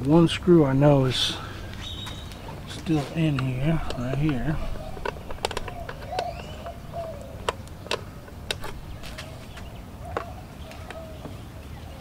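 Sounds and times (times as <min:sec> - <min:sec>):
faint bird calling: 0:01.3 - 0:12.0
screwdriver clicking on plastic: 0:03.3 - 0:09.2.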